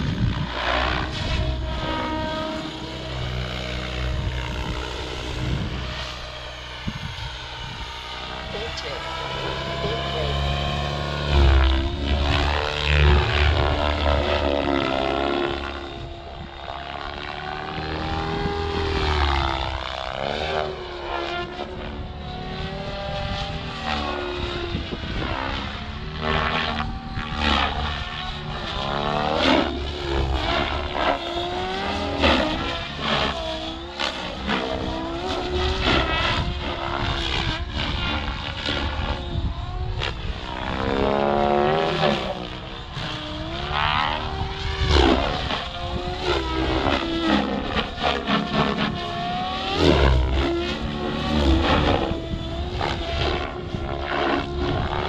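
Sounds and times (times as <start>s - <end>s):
rc helicopter whirring whine: 0.0s - 55.0s.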